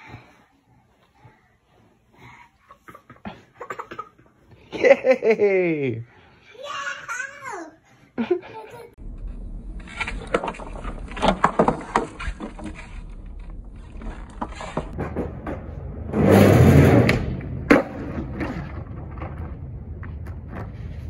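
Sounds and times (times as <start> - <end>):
loud scraping rush: 9.0 - 21.0
skateboard wheels rolling: 9.0 - 21.0
skateboard clacks: 10.0 - 16.3.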